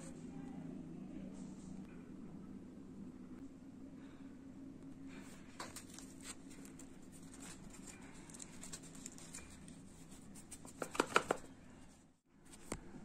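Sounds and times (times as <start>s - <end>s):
hands scratching plastic speaker: 7.1s - 11.5s.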